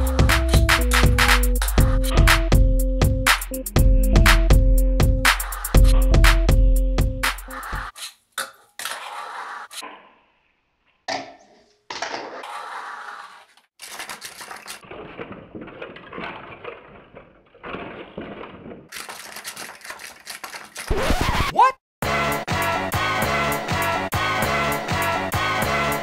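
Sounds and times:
rough clattering and scraping: 0:11.1 - 0:20.9.

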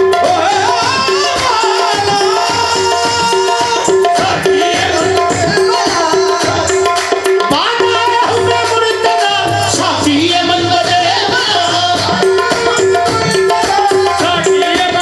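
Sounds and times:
harmonium drones and melody: 0:00.0 - 0:15.0
tabla rhythm: 0:00.0 - 0:15.0.

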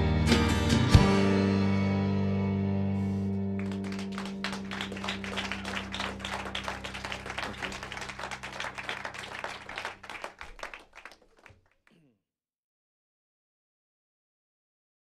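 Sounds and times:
acoustic guitars and bass chord: 0:00.0 - 0:08.8
audience applauding: 0:03.5 - 0:12.0.

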